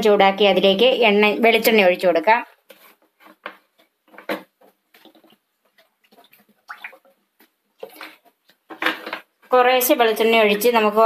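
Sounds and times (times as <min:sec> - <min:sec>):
oil popping and gurgling: 0:04.8 - 0:08.7.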